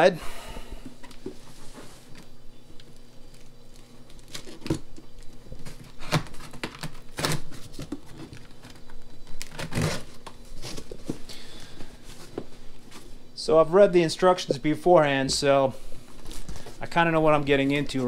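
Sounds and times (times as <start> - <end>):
packaging rustling and crinkling: 16.0 - 17.0.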